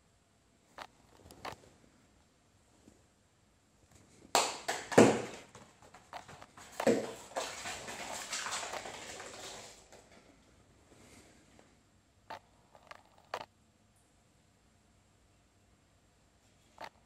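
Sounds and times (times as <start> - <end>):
foil ball knocking on floor: 4.4 - 10.2
foil ball rattling across floor: 4.4 - 10.3.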